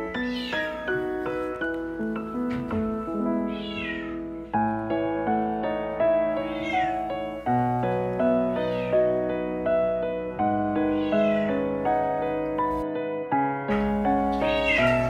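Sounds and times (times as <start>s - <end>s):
gentle piano music: 0.0s - 15.0s
cat meowing in distress: 0.1s - 0.8s, 3.5s - 4.2s, 6.5s - 7.0s, 8.6s - 9.0s, 10.9s - 11.6s, 14.3s - 15.0s.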